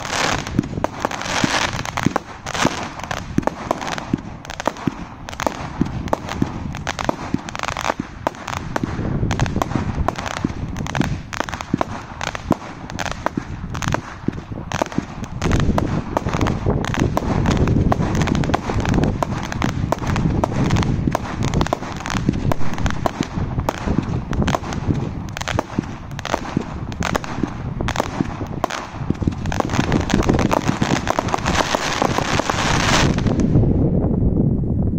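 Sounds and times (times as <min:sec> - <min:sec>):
firework cake firing rapid cracks: 0:00.0 - 0:33.5.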